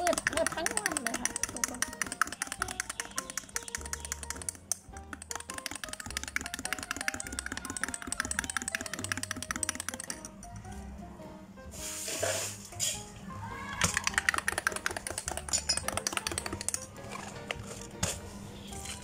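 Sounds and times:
rapid fine clicks: 0.0 - 10.6, 13.8 - 16.9.

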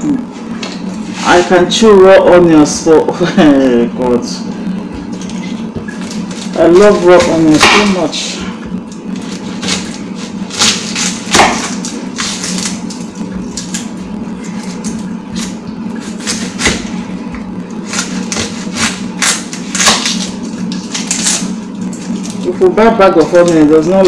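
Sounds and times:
low hum: 0.0 - 24.0
knife striking chopping board: 10.6 - 11.8.

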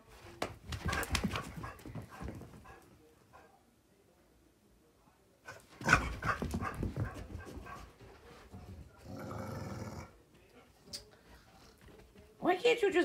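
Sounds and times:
dog running: 0.4 - 2.9, 5.8 - 9.0.

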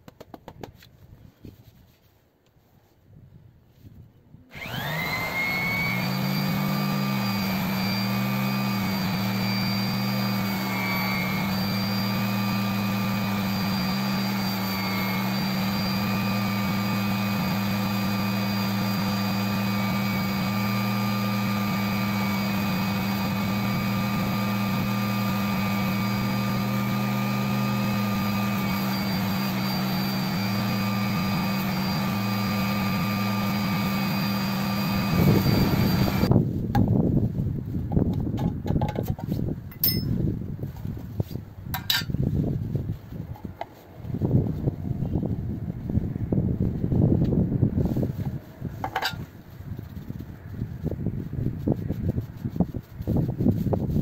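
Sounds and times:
electric polisher motor whining: 4.5 - 36.3.

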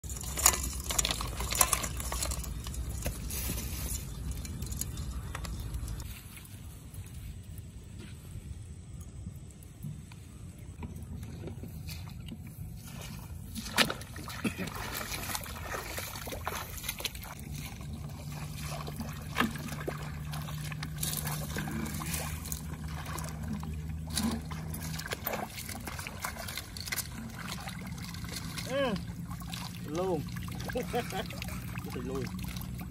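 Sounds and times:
rustling grass and palm fronds: 0.0 - 8.6, 10.7 - 32.9
low rumble: 0.0 - 13.6
low motor hum: 0.0 - 32.9.

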